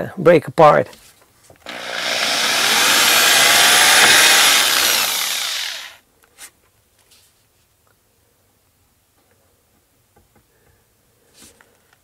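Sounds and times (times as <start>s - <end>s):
power tool cutting wood: 1.6s - 6.0s.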